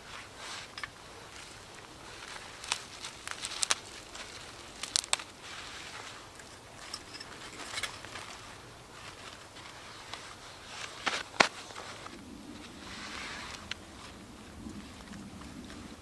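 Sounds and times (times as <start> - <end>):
sharp crackles and clicks: 2.2 - 5.4.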